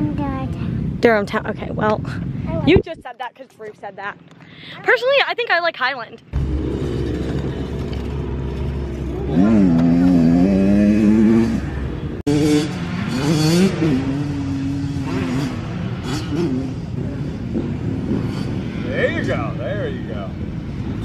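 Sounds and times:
dirt bike engine revving: 6.3 - 19.4.

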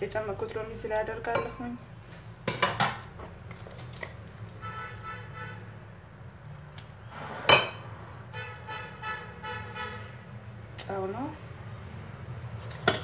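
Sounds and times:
glass dishes clinking: 7.4 - 7.9.

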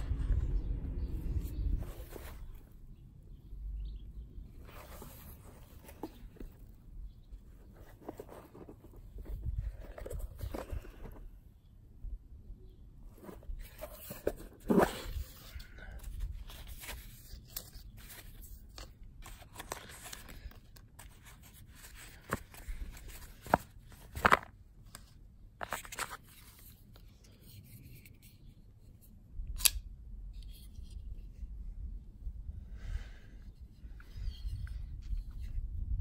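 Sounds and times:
cardboard scraping and rustling: 1.4 - 2.7, 4.6 - 6.8, 7.5 - 11.3, 13.1 - 24.6.

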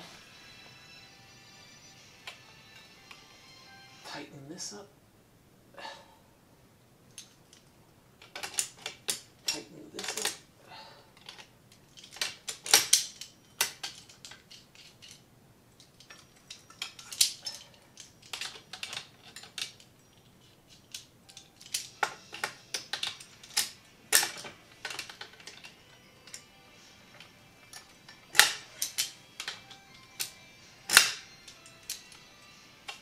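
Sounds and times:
wrench clicking on metal bolt: 27.2 - 32.2.

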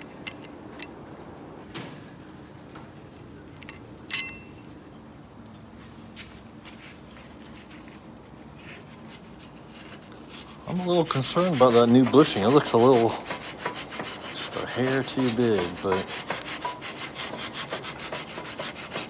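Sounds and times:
short metallic ring: 0.0 - 0.9, 3.6 - 4.7
metal-on-metal clinks: 0.0 - 1.0, 3.6 - 4.7.

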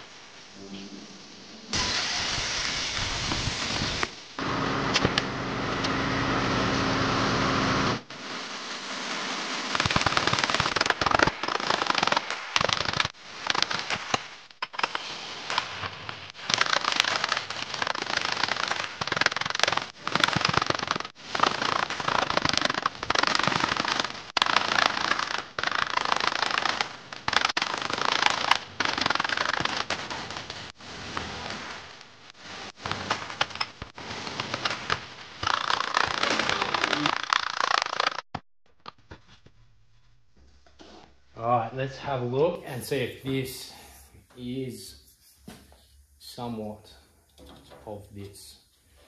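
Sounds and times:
power tool running: 3.8 - 8.0.

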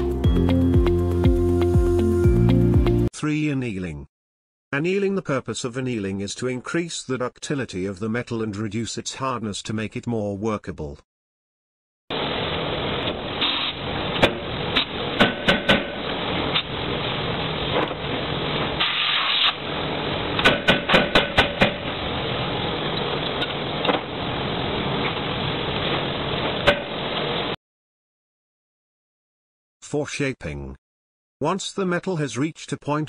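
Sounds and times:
short hiss: 18.8 - 19.6.

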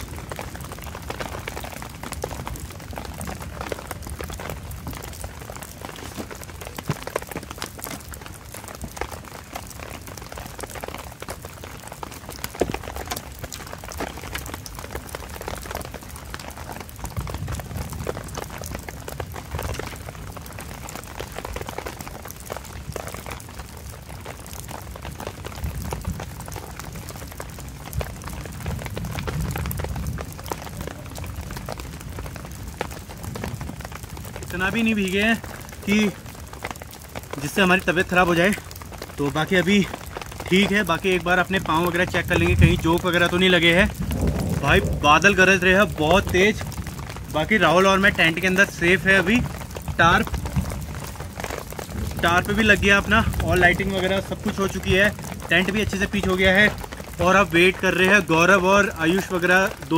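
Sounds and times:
heavy rain on a tarp: 0.0 - 59.9
low rumble: 43.8 - 47.2.

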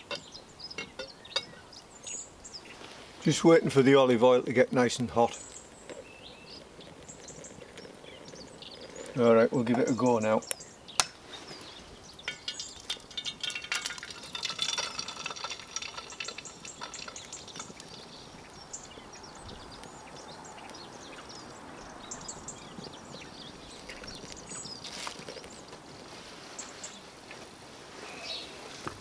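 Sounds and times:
egg sizzling in frying pan: 12.2 - 19.0.

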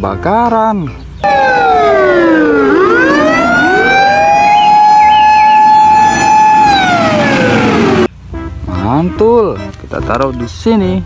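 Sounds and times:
fire engine siren wailing: 1.2 - 8.1.

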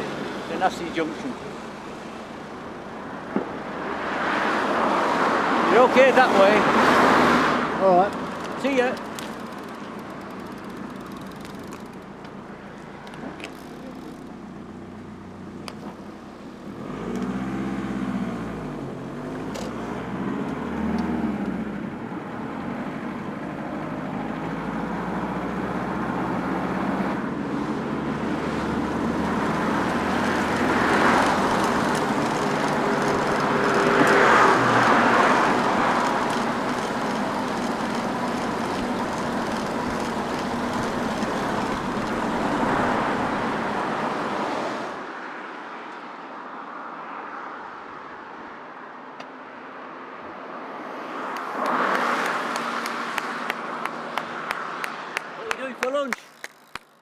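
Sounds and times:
car engine: 0.0 - 45.2
road noise: 0.0 - 57.0.

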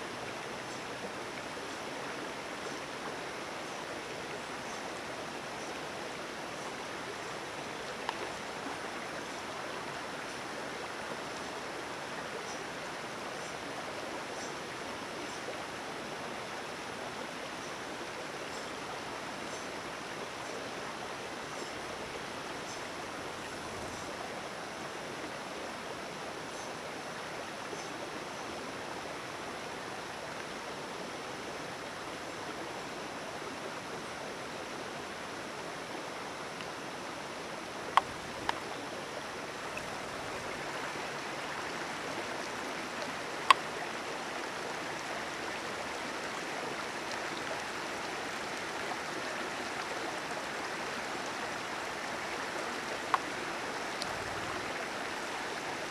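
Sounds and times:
creek rushing: 0.0 - 55.9.

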